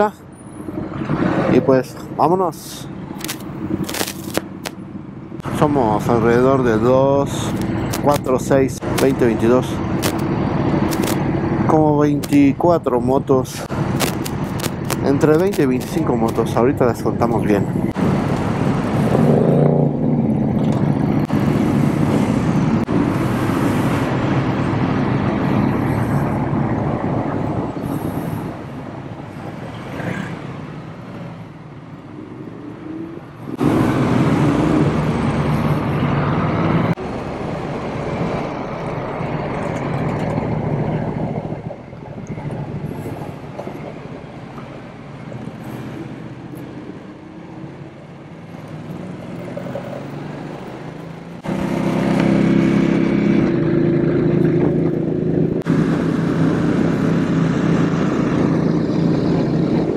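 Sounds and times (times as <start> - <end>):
motorcycles pulling away: 17.9 - 28.6, 33.0 - 37.4, 48.4 - 59.9.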